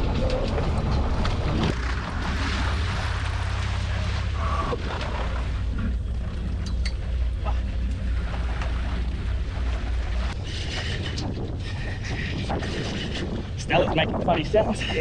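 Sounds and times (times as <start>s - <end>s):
water washing: 0.0s - 15.0s
wind buffeting microphone: 5.9s - 15.0s.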